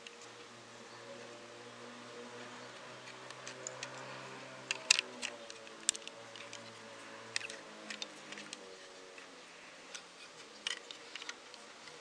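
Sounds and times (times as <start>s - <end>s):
plastic toy bricks clicking: 3.1s - 4.0s, 4.6s - 6.7s, 7.3s - 8.6s, 9.9s - 12.0s.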